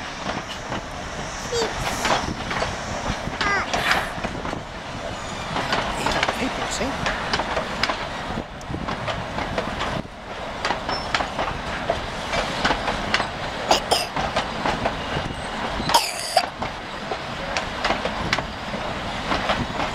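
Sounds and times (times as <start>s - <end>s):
train rolling rumble: 0.0s - 19.9s
train wheels clicking over rail joints: 5.5s - 19.9s.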